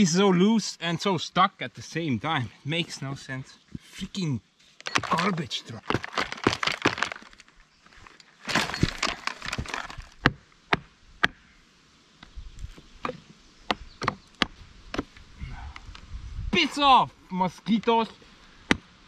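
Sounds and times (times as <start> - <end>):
dry twigs cracking and snapping: 4.9 - 10.3.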